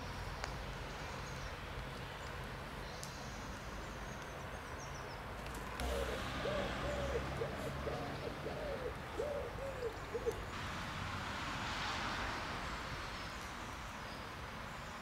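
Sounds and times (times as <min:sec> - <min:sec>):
pigeon cooing: 0:05.8 - 0:10.5.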